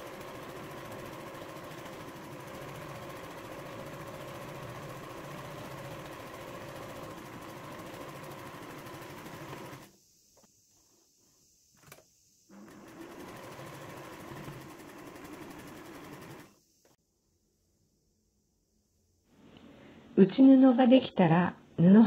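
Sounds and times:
sewing machine running: 0.0s - 9.9s, 12.5s - 16.6s.

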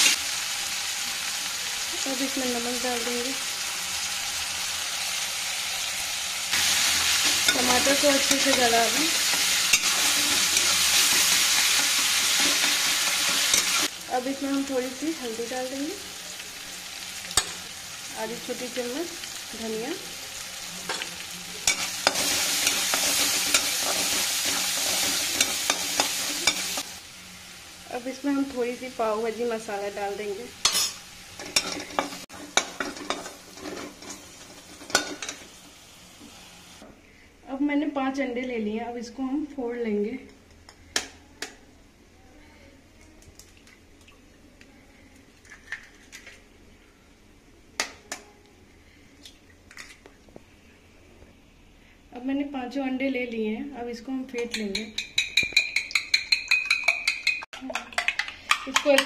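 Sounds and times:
food sizzling in a pan: 0.0s - 36.8s
spatula scraping a metal pan: 30.7s - 35.4s
spoon tapping eggshells: 54.4s - 59.0s.

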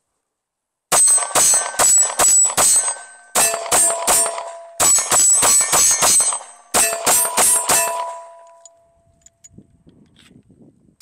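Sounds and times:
pistol shots: 0.9s - 8.4s
metallic ringing: 0.9s - 9.5s.

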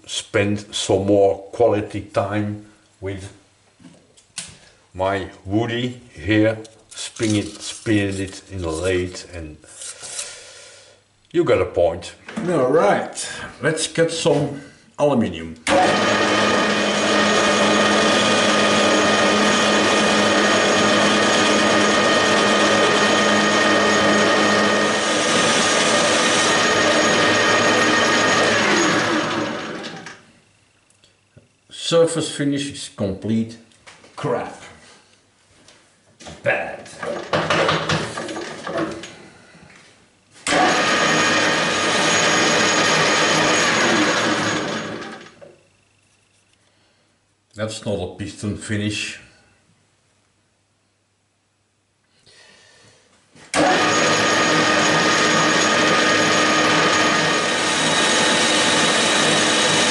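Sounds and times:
metal lathe whirring: 15.7s - 30.2s, 40.5s - 45.3s, 53.6s - 59.9s
drive whining tones: 15.7s - 30.7s, 53.6s - 59.9s.

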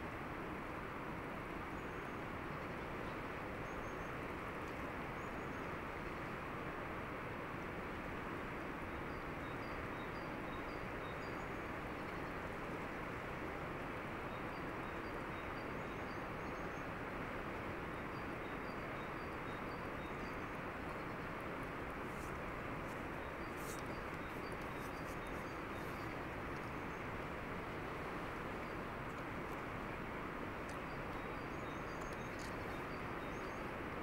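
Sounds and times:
river flowing: 0.0s - 34.0s
bird chirping: 23.2s - 27.0s.

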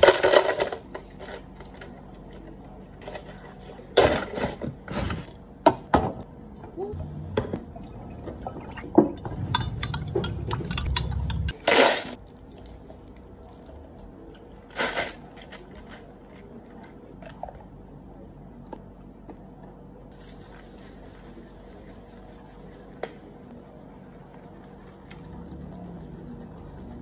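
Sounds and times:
low hum: 6.3s - 14.4s, 23.6s - 27.0s.

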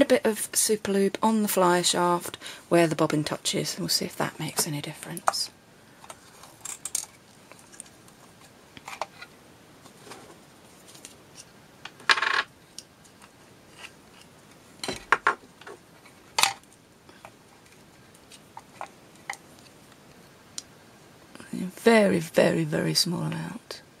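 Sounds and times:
plastic parts clicking and knocking: 6.0s - 7.2s.

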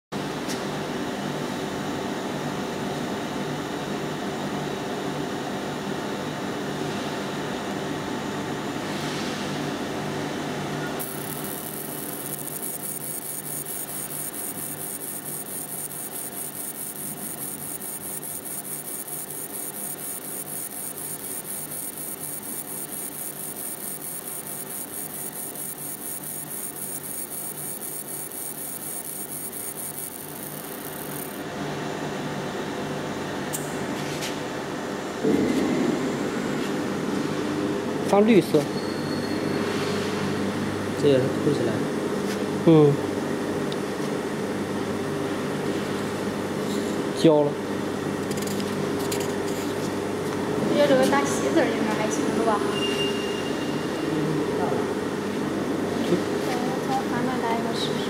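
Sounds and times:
machine fan-like hum: 0.2s - 38.0s
high-pitched buzz: 11.0s - 31.4s.

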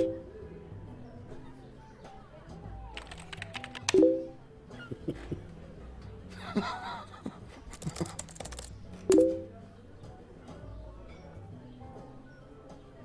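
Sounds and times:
laptop keyboard clicks: 3.0s - 4.0s, 7.6s - 9.2s
chat notification tone: 3.9s - 4.4s, 9.1s - 9.5s
person laughing: 4.8s - 5.5s, 6.3s - 8.4s.

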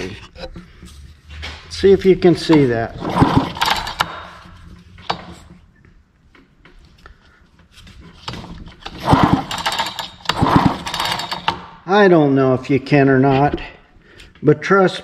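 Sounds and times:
chainsaw pull-starter clattering: 2.4s - 4.4s, 8.3s - 11.7s.

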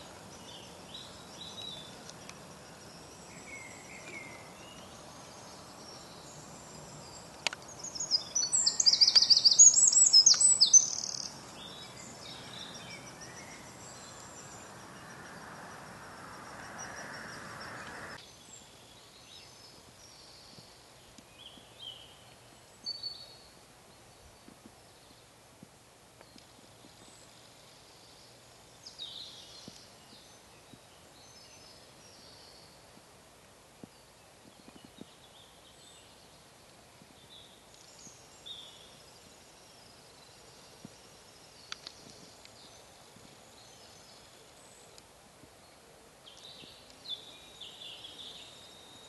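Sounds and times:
outdoor background hiss: 0.0s - 49.0s
high-pitched songbird song: 0.4s - 15.2s.

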